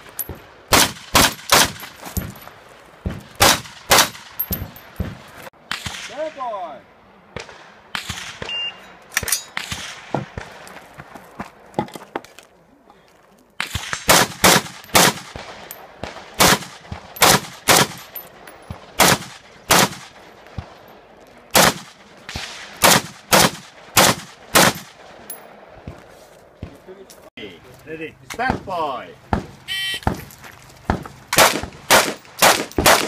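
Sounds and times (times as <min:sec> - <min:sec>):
rifle shots: 0:00.7 - 0:01.9, 0:03.4 - 0:04.8, 0:13.6 - 0:20.3, 0:21.5 - 0:25.2, 0:31.3 - 0:33.0.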